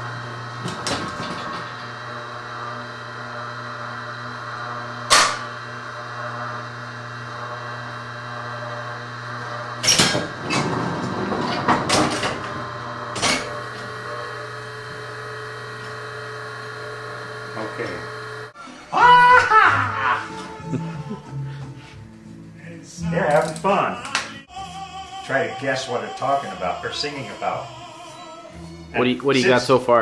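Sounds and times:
electric hum: 0:00.0 - 0:30.0
printing press clunk: 0:09.8 - 0:13.9.

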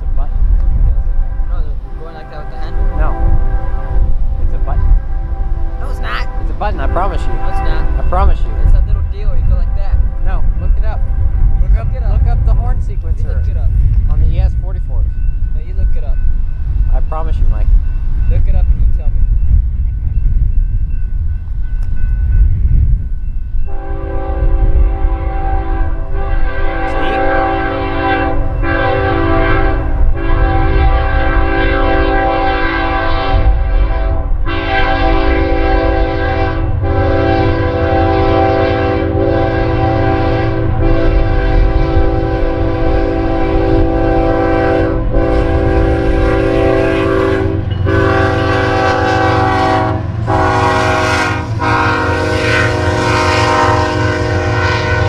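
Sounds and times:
low rumble: 0:00.0 - 0:48.4
locomotive air horn blasts: 0:01.0 - 0:09.0, 0:23.7 - 0:55.0.

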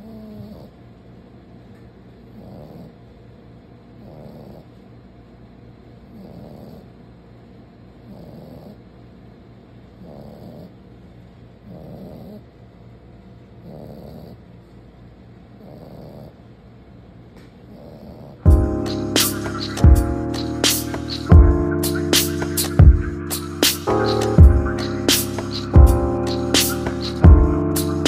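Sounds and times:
puppy snoring: 0:00.0 - 0:00.8, 0:02.2 - 0:03.2, 0:03.8 - 0:04.8, 0:06.0 - 0:07.1, 0:08.0 - 0:09.0, 0:09.9 - 0:11.0, 0:11.6 - 0:12.6, 0:13.5 - 0:14.6, 0:15.5 - 0:16.6, 0:17.6 - 0:18.4.

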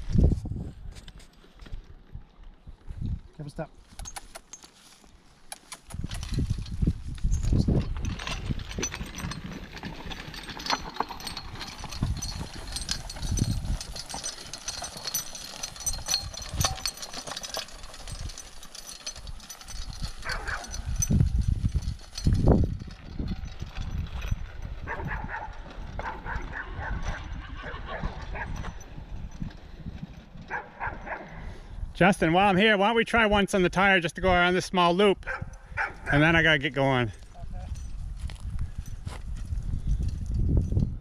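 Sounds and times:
hooves on grass and dirt: 0:00.0 - 0:27.2, 0:37.1 - 0:40.7
harness hardware clinking: 0:03.8 - 0:31.6, 0:35.2 - 0:41.0.

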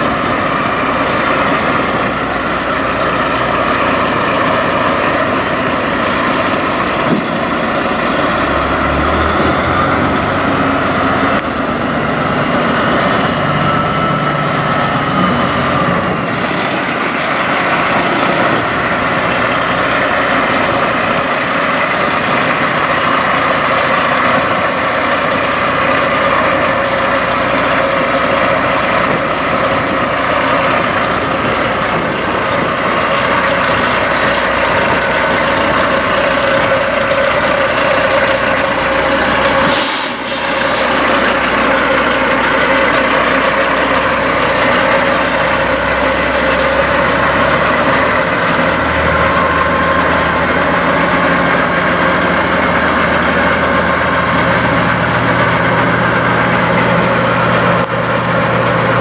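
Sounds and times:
truck engine idling: 0:00.0 - 0:59.0
air brake hiss: 0:06.0 - 0:07.0, 0:34.1 - 0:34.6, 0:39.6 - 0:41.1.

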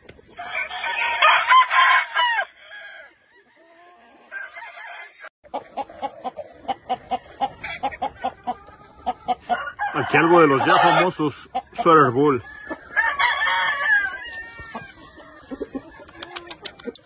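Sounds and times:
rooster crowing: 0:00.4 - 0:05.3, 0:09.4 - 0:11.1, 0:12.4 - 0:15.0
short clucks: 0:15.7 - 0:17.0.

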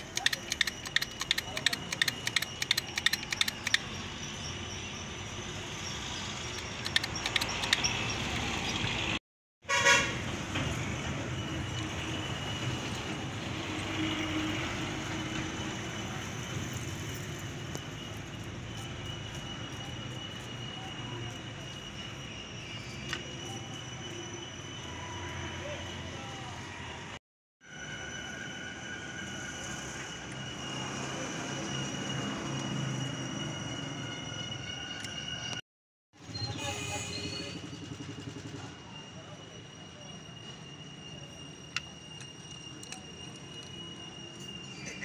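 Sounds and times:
metal clicks of hand tools: 0:00.0 - 0:03.8, 0:06.6 - 0:07.9
hum of passing traffic: 0:00.0 - 0:27.2, 0:27.8 - 0:35.6
vehicle horn toot: 0:09.6 - 0:10.2, 0:36.5 - 0:37.6.

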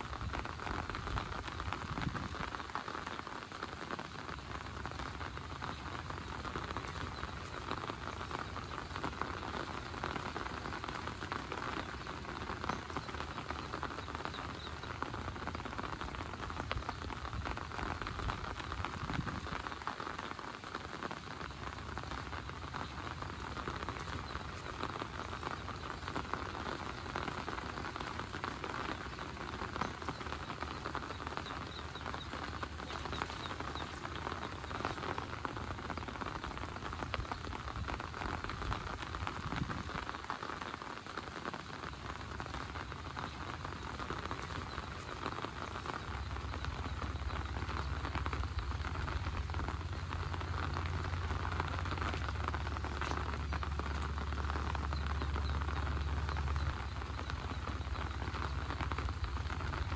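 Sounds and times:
heavy rain on an umbrella: 0:00.0 - 0:59.9.

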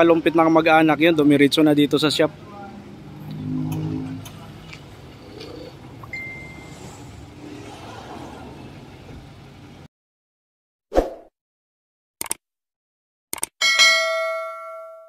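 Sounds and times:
low outdoor rumble: 0:00.1 - 0:09.9
double click: 0:13.3 - 0:13.5.

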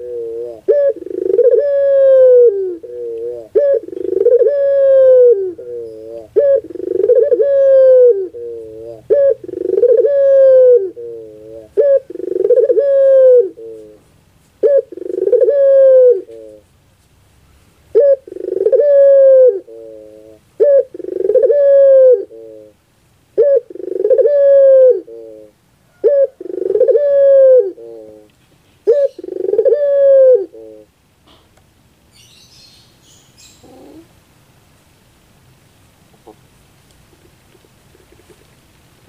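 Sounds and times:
dove cooing: 0:00.0 - 0:14.0, 0:14.6 - 0:16.6, 0:17.9 - 0:22.8, 0:23.4 - 0:31.4, 0:33.4 - 0:34.2.

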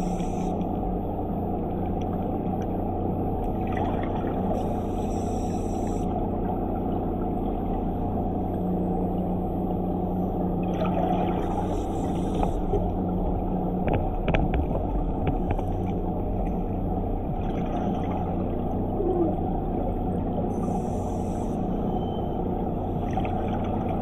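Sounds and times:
exhaled bubbles hissing: 0:00.0 - 0:00.6, 0:04.5 - 0:06.1, 0:11.2 - 0:12.8, 0:20.6 - 0:21.7
underwater scooter motor hum: 0:00.0 - 0:24.0.

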